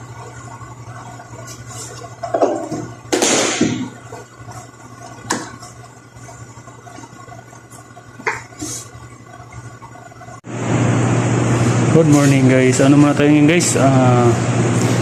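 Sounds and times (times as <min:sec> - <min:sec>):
steady low hum: 0:00.0 - 0:15.0
bottles knocking and clinking: 0:02.2 - 0:02.9.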